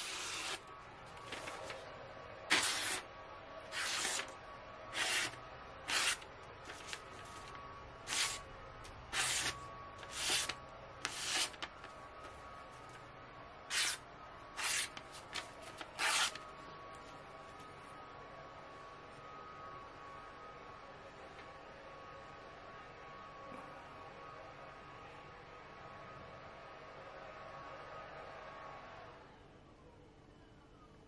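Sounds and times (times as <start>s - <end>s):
knife slicing paper: 0.0s - 0.6s, 2.5s - 3.0s, 3.7s - 4.3s, 4.9s - 7.0s, 8.0s - 8.4s, 9.1s - 11.7s, 13.7s - 14.0s, 14.6s - 16.4s.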